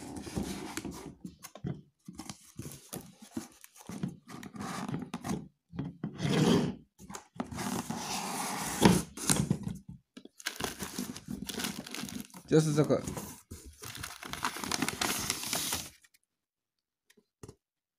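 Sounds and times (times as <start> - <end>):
plastic wrapping rustling: 10.4 - 16.1.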